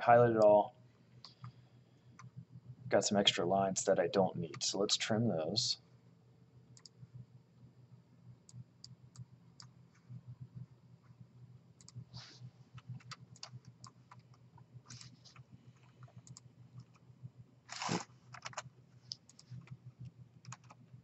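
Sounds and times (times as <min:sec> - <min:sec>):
faint low hum: 0:00.0 - 0:21.0
computer mouse clicking: 0:01.2 - 0:01.6, 0:06.7 - 0:07.0, 0:11.8 - 0:12.0, 0:12.8 - 0:17.0, 0:17.8 - 0:20.9.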